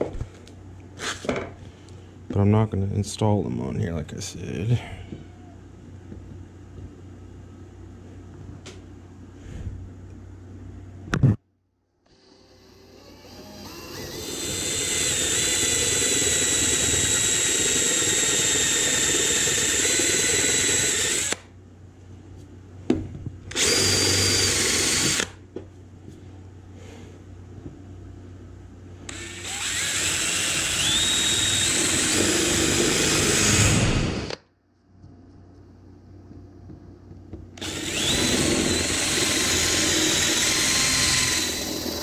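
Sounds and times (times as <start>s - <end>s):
cordless drill boring into wood: 12.1s - 21.4s, 23.5s - 25.4s, 29.1s - 34.4s, 37.6s - 42.0s.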